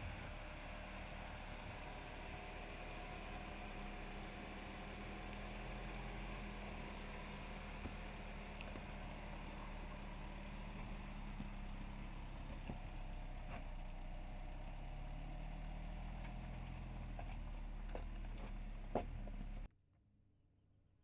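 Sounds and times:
suv engine at low revs: 0:00.0 - 0:19.7
tyres clicking on rocks: 0:05.2 - 0:14.2.

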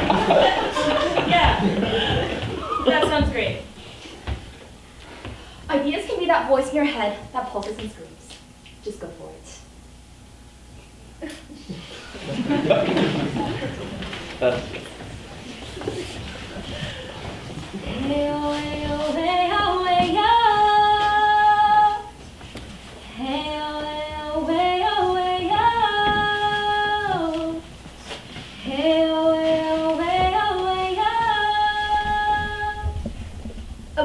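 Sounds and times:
woman singing unaccompanied: 0:17.8 - 0:22.2, 0:23.0 - 0:27.8, 0:28.6 - 0:33.1.

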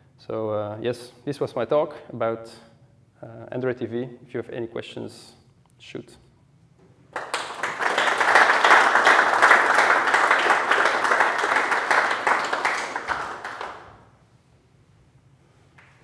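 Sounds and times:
audience applauding: 0:07.1 - 0:14.1.

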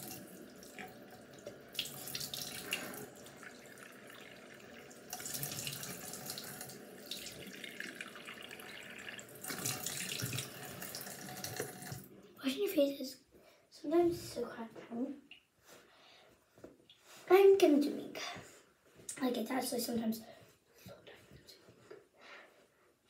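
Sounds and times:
faucet running: 0:00.0 - 0:12.2.

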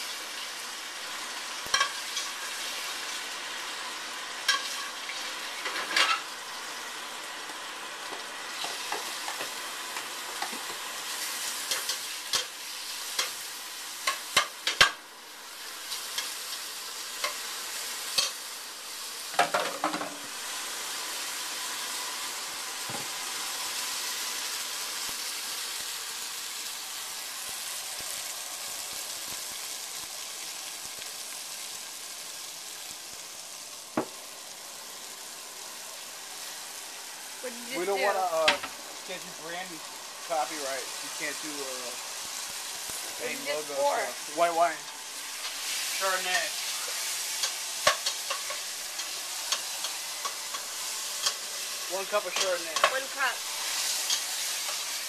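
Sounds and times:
meat sizzling in oil: 0:00.0 - 0:55.0.

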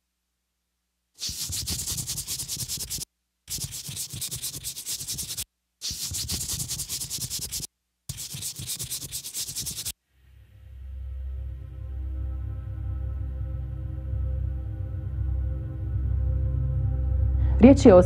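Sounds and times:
harsh scratchy rattling noise: 0:01.2 - 0:09.9.

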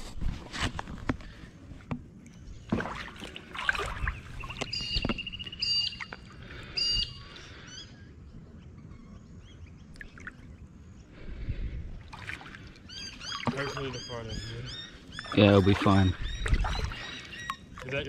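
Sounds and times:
fish thrashing in water: 0:00.8 - 0:06.6, 0:12.0 - 0:14.1, 0:15.2 - 0:18.0
bird whistling call: 0:04.4 - 0:06.1, 0:06.7 - 0:07.9, 0:12.9 - 0:17.6.

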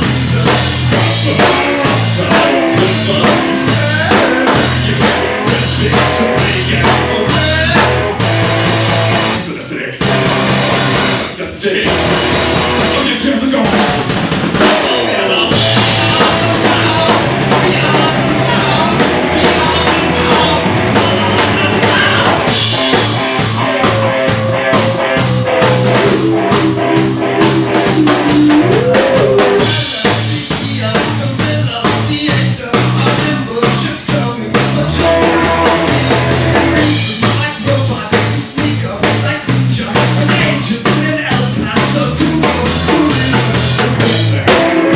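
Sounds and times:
rock band playing: 0:00.0 - 0:44.9
drum kit hits: 0:11.9 - 0:13.1, 0:13.7 - 0:32.1, 0:32.8 - 0:37.7.

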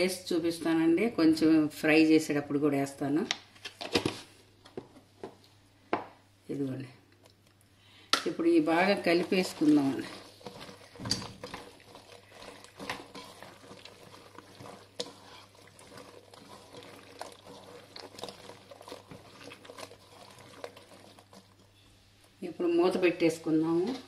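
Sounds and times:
wet squelching: 0:08.6 - 0:21.8.

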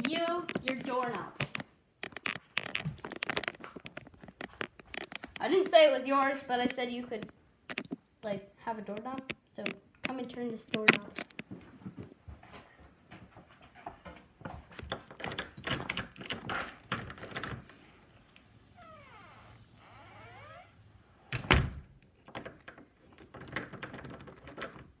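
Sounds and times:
doorknob rattling and latch clicking: 0:14.8 - 0:17.7, 0:21.3 - 0:25.0
door shutting with thud: 0:21.3 - 0:21.9.

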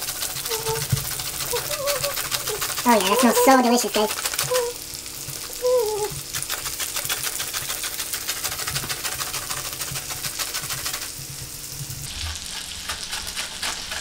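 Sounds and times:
lemon rasping on grater: 0:00.0 - 0:04.8, 0:05.6 - 0:11.2, 0:12.1 - 0:14.0.

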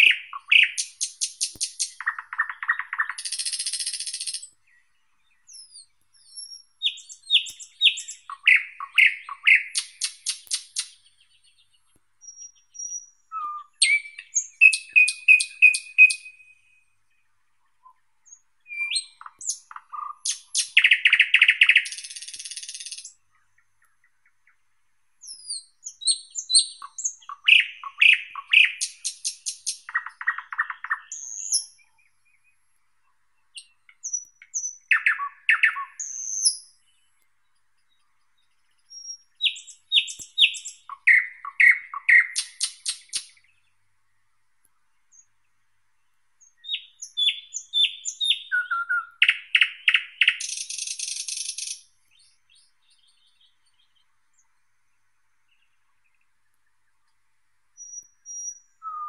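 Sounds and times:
nightingale singing: 0:00.0 - 0:59.0.

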